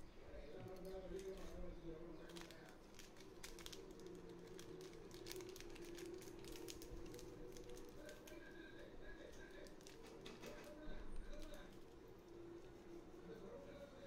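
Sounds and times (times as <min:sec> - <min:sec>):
foil sachet crinkling: 0:00.8 - 0:01.6, 0:02.2 - 0:08.5, 0:09.2 - 0:11.9.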